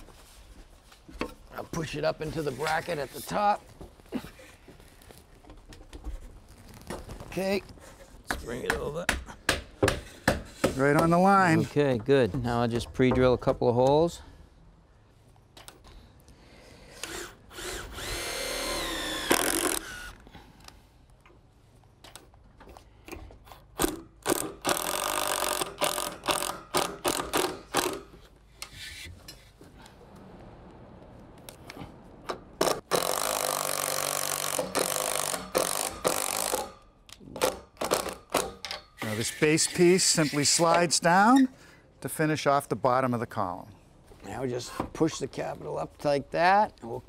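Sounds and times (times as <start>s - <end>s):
cordless drill whining: 16.9s - 20.2s
drill driving screws clicking: 17.0s - 20.2s, 32.6s - 36.8s.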